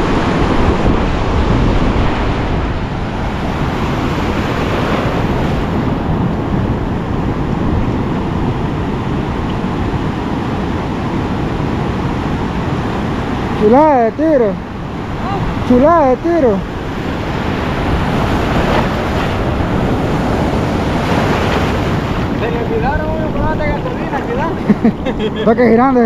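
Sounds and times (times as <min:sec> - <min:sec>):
ocean surf breaking: 0:00.0 - 0:26.0
wind buffeting microphone: 0:00.0 - 0:26.0.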